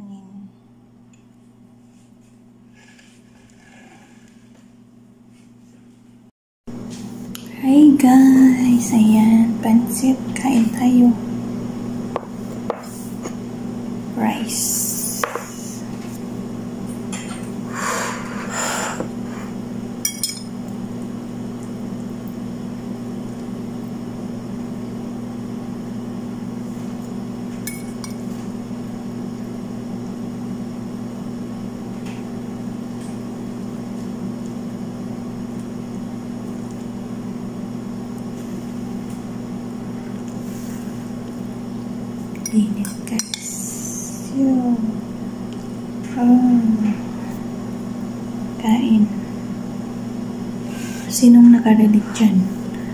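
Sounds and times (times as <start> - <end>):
steady low hum: 0.0 - 52.9
fork scraping a plate: 2.7 - 4.6.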